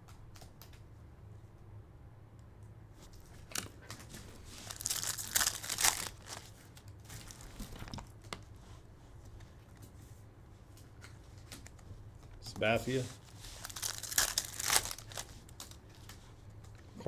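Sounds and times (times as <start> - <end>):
foil wrapper tearing and crinkling: 3.4 - 8.1, 12.8 - 16.1.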